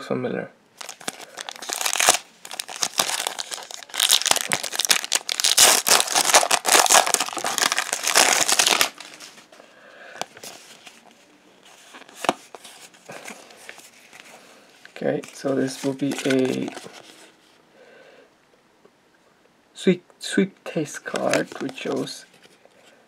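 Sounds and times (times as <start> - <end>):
foil pack tearing and crinkling: 0.8 - 9.2
handling of cards: 0.8 - 9.6, 10.2 - 17.4, 21.0 - 22.7.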